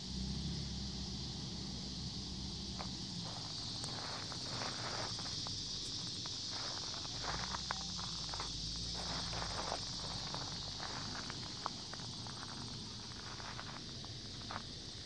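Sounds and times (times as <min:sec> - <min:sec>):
insects chorus: 0:00.0 - 0:15.0
footsteps on gravel: 0:02.8 - 0:15.0
rustling through dry weeds: 0:03.2 - 0:14.0.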